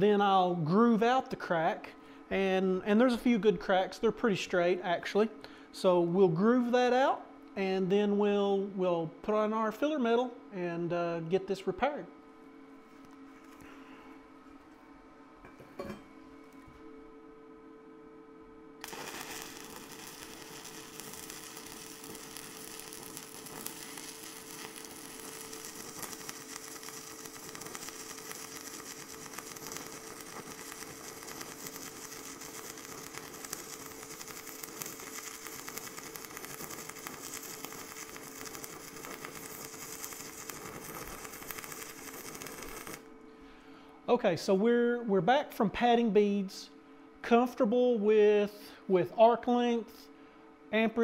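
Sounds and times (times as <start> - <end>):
steady low hum: 0.0 - 51.0
welding arc crackling: 18.8 - 43.2.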